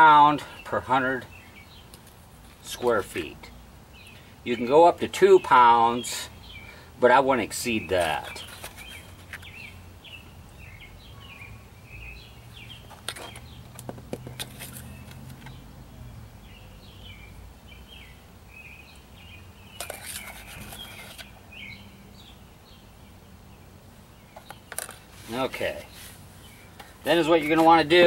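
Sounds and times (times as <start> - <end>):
small birds chirping: 0.0 - 28.0
plastic scoop scraping a cup: 8.2 - 9.5, 19.8 - 21.3.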